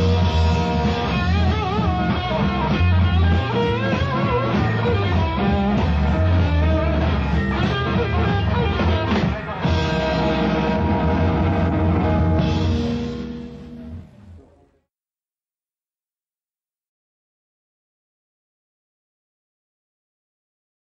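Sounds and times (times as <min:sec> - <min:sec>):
rock band playing: 0:00.0 - 0:14.5.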